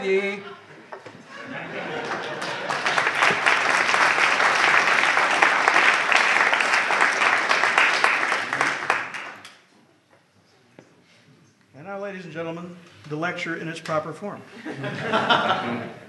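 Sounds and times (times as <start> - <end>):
audience applauding: 1.4 - 9.6.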